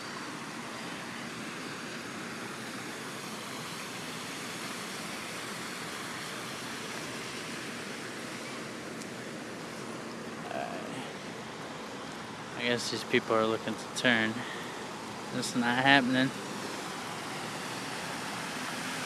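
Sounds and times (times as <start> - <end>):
floodwater rushing: 0.2 - 19.0.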